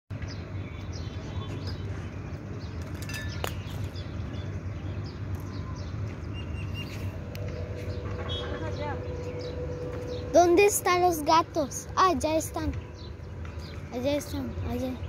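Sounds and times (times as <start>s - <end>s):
birds chirping: 0.1s - 15.0s
low hum: 0.2s - 15.0s.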